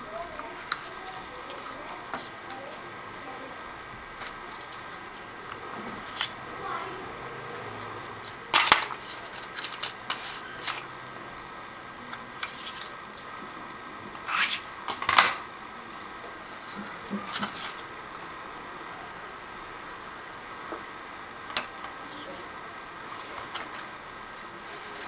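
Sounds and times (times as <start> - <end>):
packaging rustling: 15.7 - 17.9.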